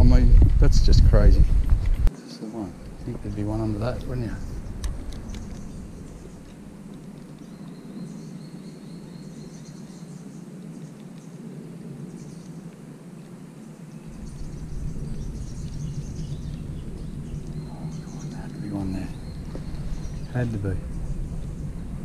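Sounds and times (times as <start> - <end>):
low rumble: 0.0 - 2.1, 2.7 - 10.1, 13.9 - 22.0
bird calls: 2.1 - 22.0
insect calls: 2.2 - 22.0.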